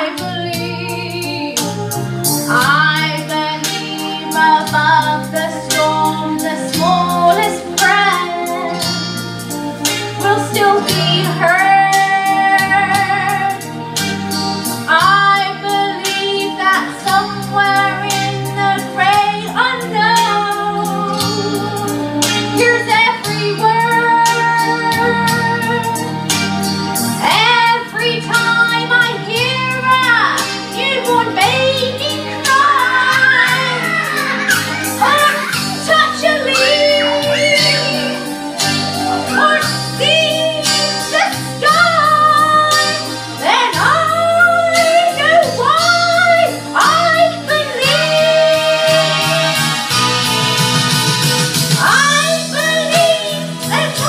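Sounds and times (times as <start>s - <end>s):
person singing with vibrato: 0.0s - 13.6s, 27.2s - 50.0s
backing track with bass and beat: 0.0s - 54.0s.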